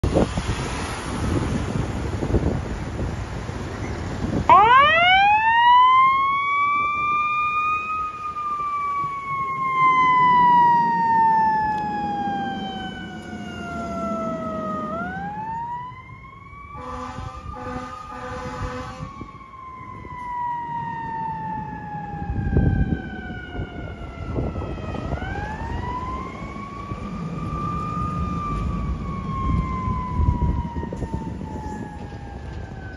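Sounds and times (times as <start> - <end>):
mechanical siren wailing: 4.5 - 32.9
air horn blasts: 16.8 - 19.2.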